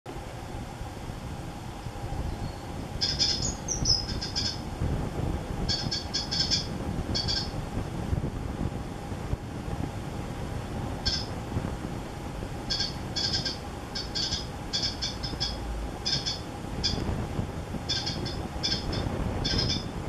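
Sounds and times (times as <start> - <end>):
nestlings cheeping: 2.2 - 4.7, 5.7 - 7.6, 11.0 - 11.3, 12.7 - 17.1, 17.8 - 19.9.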